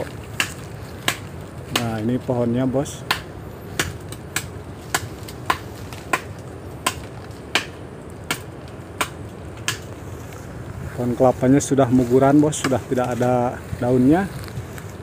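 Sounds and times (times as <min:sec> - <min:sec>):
axe chopping palm trunk: 0:00.0 - 0:02.1, 0:03.0 - 0:09.9, 0:12.6 - 0:12.9.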